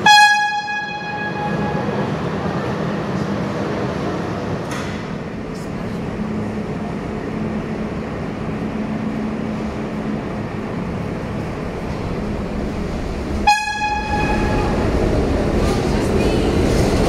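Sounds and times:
train horn: 0.0 - 2.0, 13.4 - 14.8
subway train equipment hum: 0.0 - 17.0.

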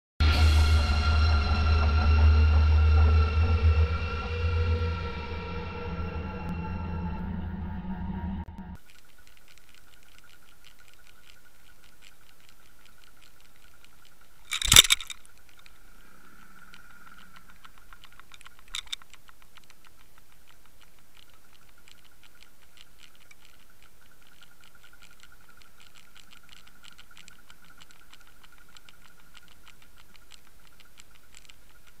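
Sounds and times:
fine ticking: 8.8 - 32.0.

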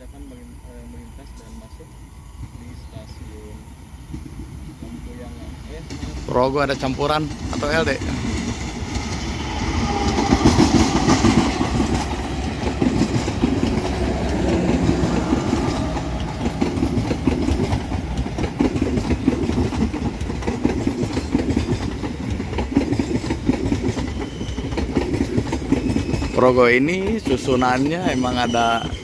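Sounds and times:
diesel locomotive passing: 0.0 - 29.0
wheels clattering over rail joints: 5.8 - 29.0.

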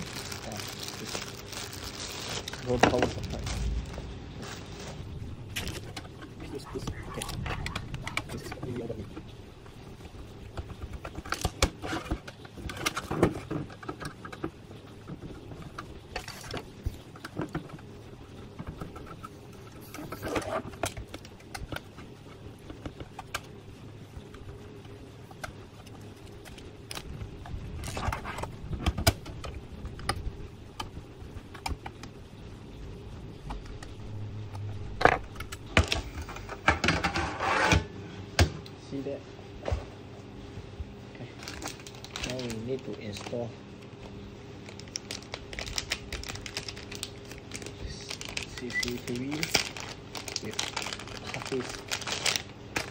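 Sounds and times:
metal cover scraping and rattling: 35.0 - 37.9.

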